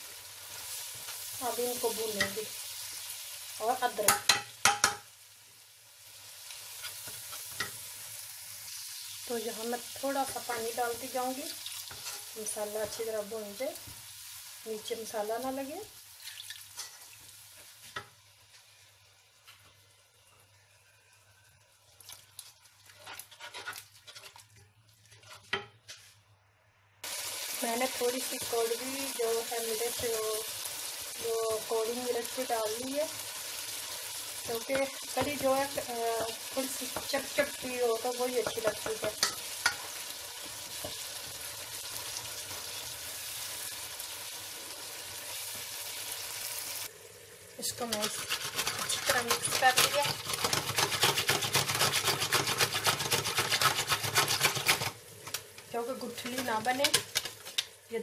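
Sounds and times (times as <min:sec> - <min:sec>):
masala sizzling in a pot: 0:00.0 - 0:58.0
wooden spoon scraping metal pot: 0:22.9 - 0:26.1, 0:47.8 - 0:55.0.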